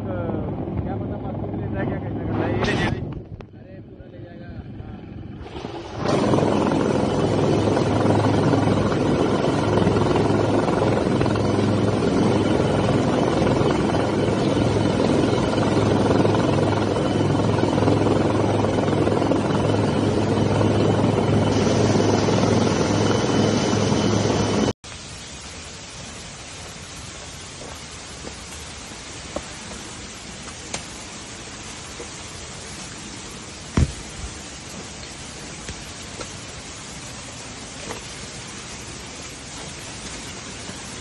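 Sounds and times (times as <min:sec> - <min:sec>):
helicopter hovering: 0:00.0 - 0:24.8.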